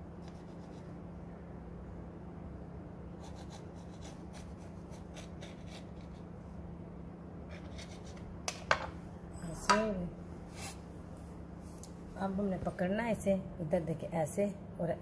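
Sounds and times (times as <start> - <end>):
knife scratching through bread: 3.2 - 6.3, 7.5 - 8.3.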